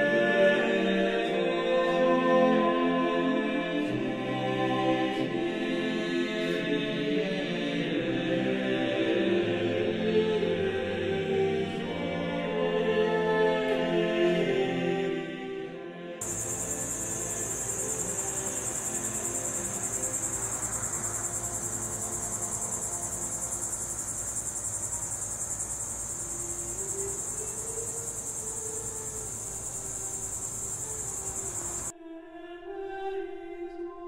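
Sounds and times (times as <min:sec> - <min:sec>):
insects trilling: 0:16.2 - 0:31.9.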